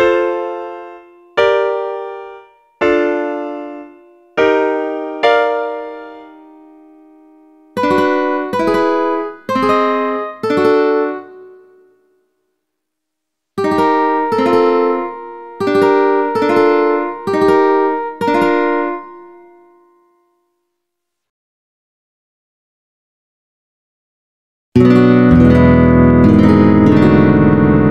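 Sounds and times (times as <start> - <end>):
piano chord: 0.0 - 11.9, 24.8 - 27.9
ukulele chords ringing: 7.8 - 11.8, 13.6 - 20.2, 24.8 - 27.9.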